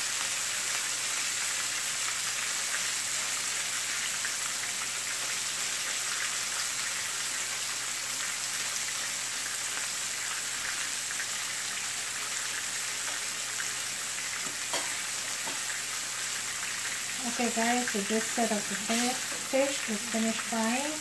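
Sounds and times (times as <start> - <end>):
fish sizzling in hot oil: 0.0 - 21.0.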